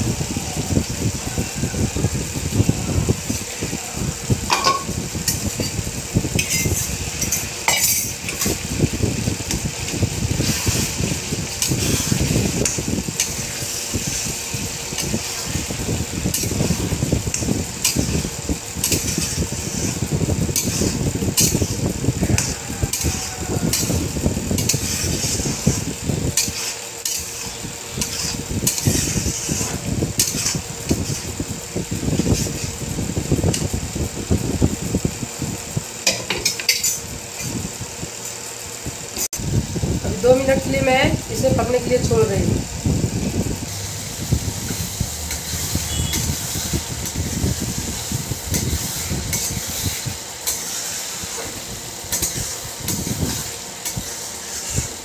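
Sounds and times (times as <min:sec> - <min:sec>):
oil sizzling: 0:00.0 - 0:55.0
spatula scraping metal pan: 0:10.4 - 0:24.0, 0:24.6 - 0:31.4, 0:52.1 - 0:55.0
low rumble: 0:42.2 - 0:48.6.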